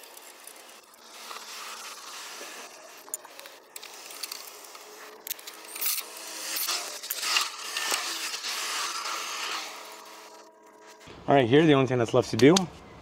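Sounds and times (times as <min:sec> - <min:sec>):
metal parts clicking: 0:02.6 - 0:09.7.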